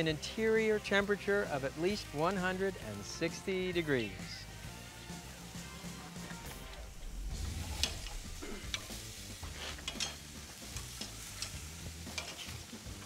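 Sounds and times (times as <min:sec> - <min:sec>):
burger patties sizzling on grill: 0:00.0 - 0:13.0
tongs clicking against grate: 0:09.8 - 0:10.2, 0:10.8 - 0:12.5.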